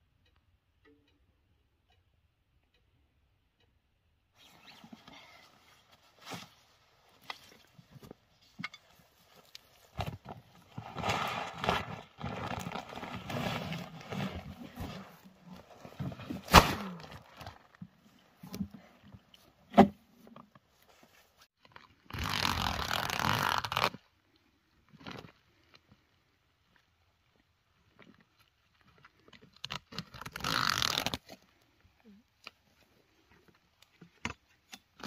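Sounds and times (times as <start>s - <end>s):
plastic sack rustling: 9.2s - 17.7s.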